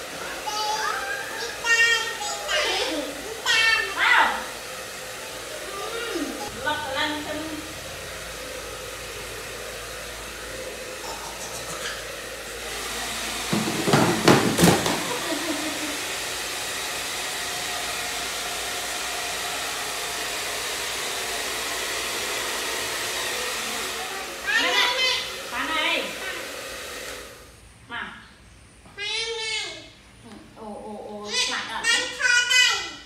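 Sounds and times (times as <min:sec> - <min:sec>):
hair dryer blowing: 0:00.0 - 0:27.6.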